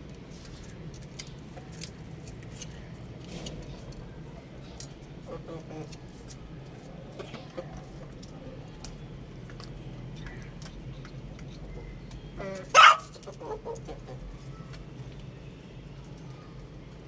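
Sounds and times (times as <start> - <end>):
chickens pecking in steel bowl: 0.4 - 15.2
chicken squawk: 12.4 - 14.2
chicken clucking: 12.4 - 14.4.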